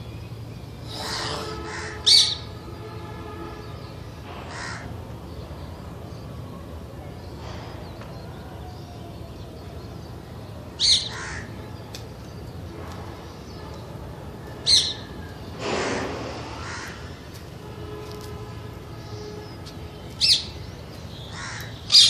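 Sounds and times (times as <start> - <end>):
parakeet rough call: 0.8 - 2.4
parakeet screeching: 0.9 - 2.4.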